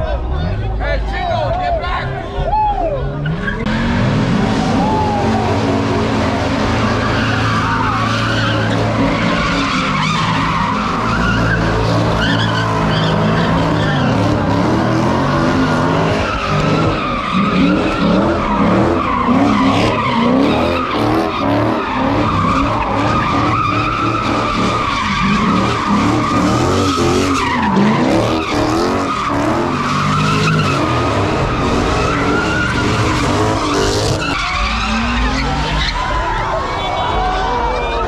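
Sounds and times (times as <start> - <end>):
car engine revving: 3.1 - 37.6
tyres squealing: 6.8 - 36.2.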